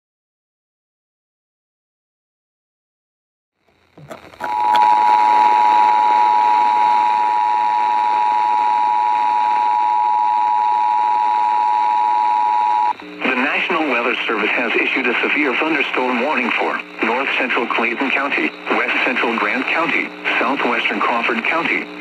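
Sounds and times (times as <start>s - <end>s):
radio hiss: 3.7s - 9.8s, 12.9s - 22.0s.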